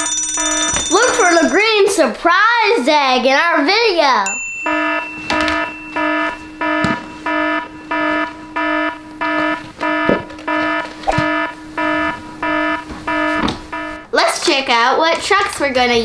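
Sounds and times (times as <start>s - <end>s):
fire alarm beeping: 0.0s - 1.9s, 4.3s - 14.2s.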